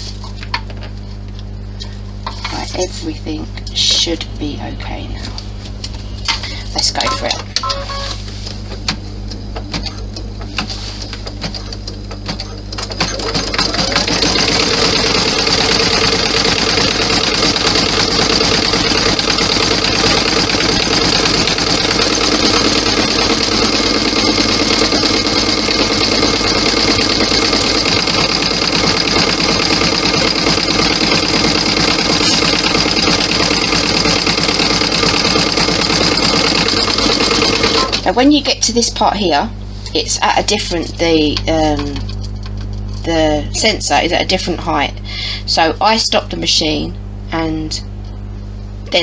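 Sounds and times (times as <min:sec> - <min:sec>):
embroidery machine stitching: 0:09.6 - 0:38.1.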